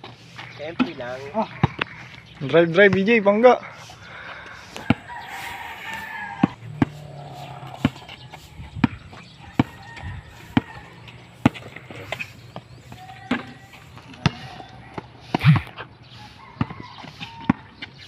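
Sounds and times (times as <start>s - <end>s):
basketball bouncing on concrete: 0.8s - 2.1s, 2.7s - 3.4s, 4.8s - 5.1s, 6.1s - 15.8s
rooster crowing: 4.2s - 8.5s, 9.3s - 11.1s.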